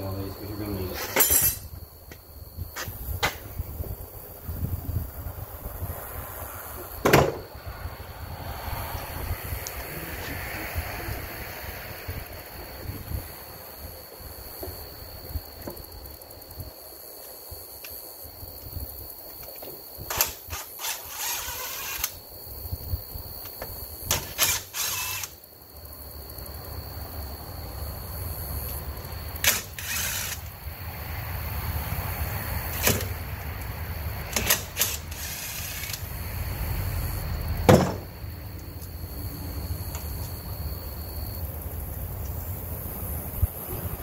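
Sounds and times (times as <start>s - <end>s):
metal engine parts clinking: 1.0s - 1.7s.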